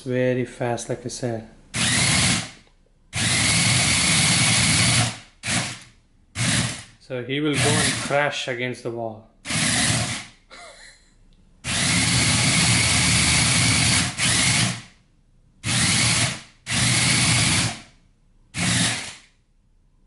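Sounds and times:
robot toy motors whirring: 1.8 - 2.6, 9.5 - 10.2, 11.7 - 14.9, 18.6 - 19.3.

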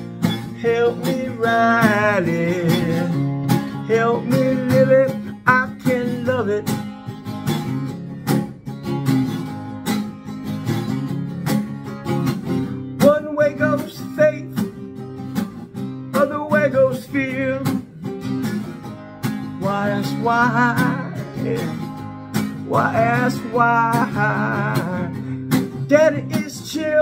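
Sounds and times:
man singing: 0.0 - 6.9, 13.0 - 15.0, 16.1 - 17.9, 19.4 - 27.0
acoustic guitar strumming: 0.0 - 27.0.

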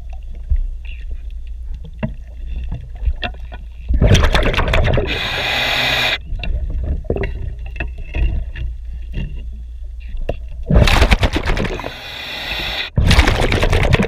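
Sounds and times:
exhaled bubbles rushing: 4.0 - 5.4, 10.7 - 12.2, 12.9 - 14.0.

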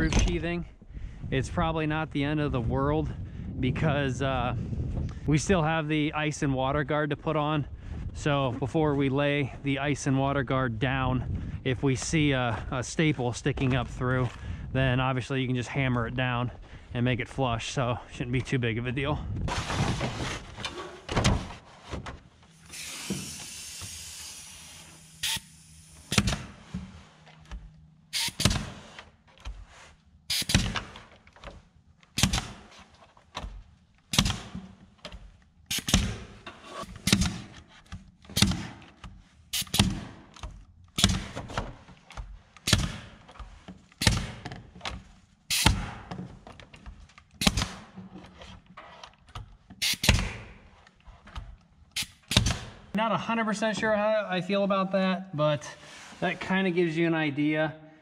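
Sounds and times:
pneumatic stapler firing: 22.6 - 26.6, 28.1 - 29.0, 30.3 - 31.1, 32.2 - 32.7, 34.1 - 34.6, 35.7 - 37.6, 38.3 - 38.8, 39.5 - 40.2, 41.0 - 41.5, 42.6 - 43.1, 44.0 - 44.4, 45.5 - 46.1, 47.4 - 48.0, 49.8 - 50.6, 51.9 - 52.8.

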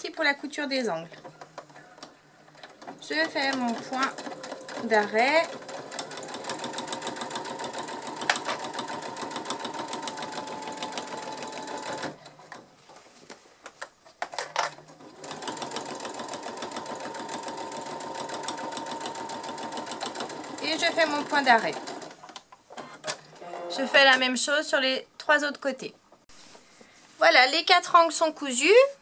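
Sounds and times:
sewing machine stitching: 1.1 - 12.6, 14.7 - 22.2.

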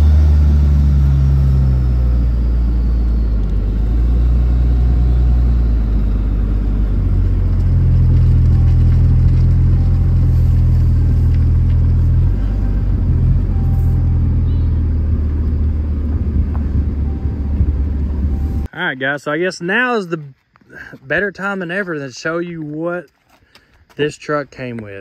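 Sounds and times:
motor vehicle low rumble: 0.0 - 18.7.

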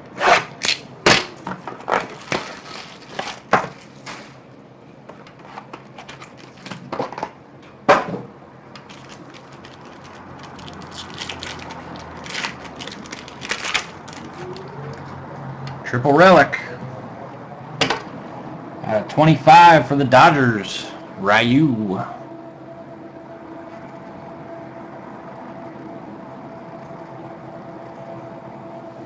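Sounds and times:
plastic and foil crinkling: 1.9 - 4.4, 5.9 - 6.9, 8.8 - 14.7.

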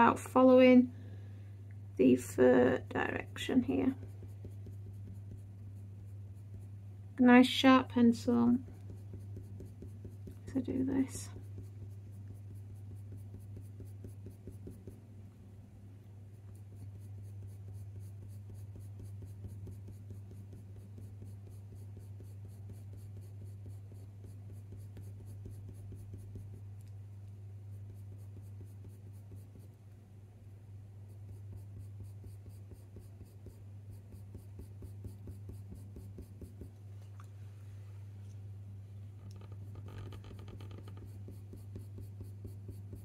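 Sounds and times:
steady low hum: 0.0 - 43.0
pencil scratching on paper: 2.6 - 6.8, 8.2 - 15.0, 16.3 - 26.8, 27.7 - 29.8, 31.0 - 36.7, 39.6 - 43.0.

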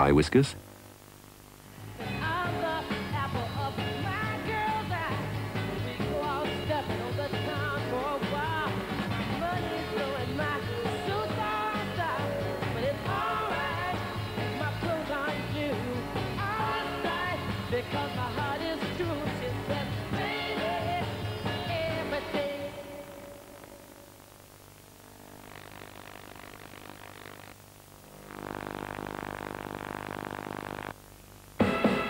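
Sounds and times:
rock and roll song: 1.8 - 23.1, 31.6 - 32.0.

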